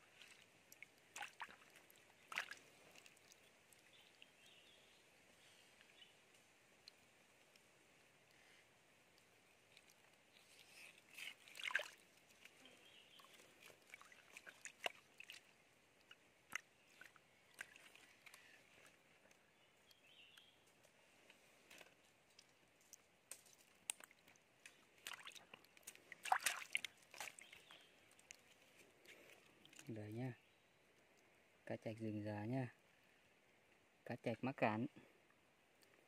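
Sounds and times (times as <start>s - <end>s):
shallow water sloshing and splashing: 0.0s - 4.7s, 9.7s - 19.0s, 23.5s - 29.9s.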